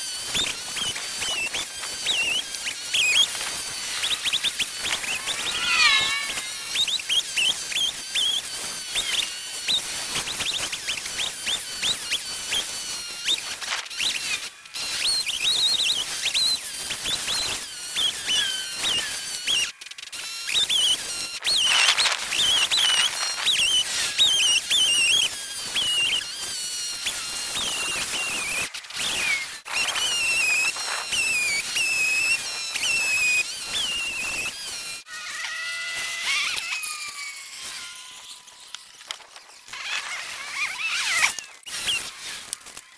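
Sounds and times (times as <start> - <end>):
sped-up chainsaw squealing: 0.0 - 42.9.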